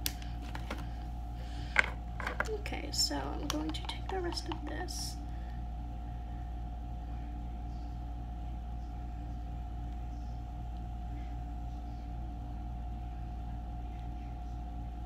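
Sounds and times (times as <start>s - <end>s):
machine humming with steady tone: 0.0s - 15.0s.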